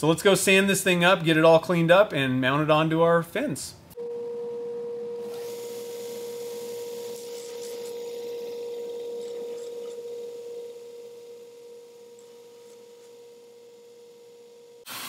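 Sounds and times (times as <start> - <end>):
sander humming: 4.0 - 15.0.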